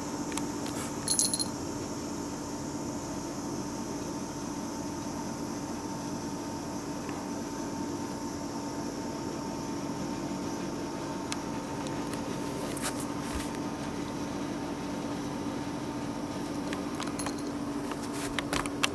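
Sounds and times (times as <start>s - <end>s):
steady low hum: 0.0s - 18.9s
cat collar bell tinkling: 1.0s - 1.6s, 17.1s - 17.6s.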